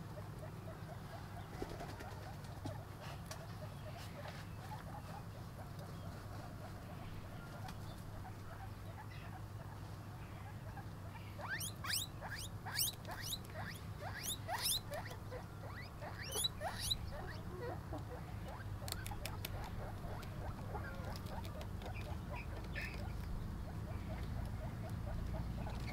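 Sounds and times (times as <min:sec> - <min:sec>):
guinea pigs squeaking: 0:00.2 - 0:25.9
faint crunching clicks: 0:18.5 - 0:23.4.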